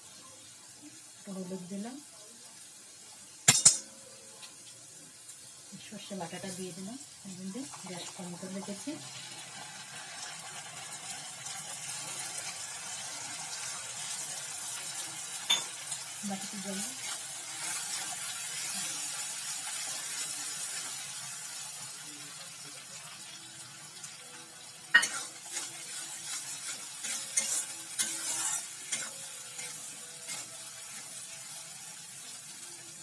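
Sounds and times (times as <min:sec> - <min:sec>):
food sizzling in oil: 0:00.0 - 0:33.0
spatula scraping and knocking pan: 0:25.0 - 0:31.1.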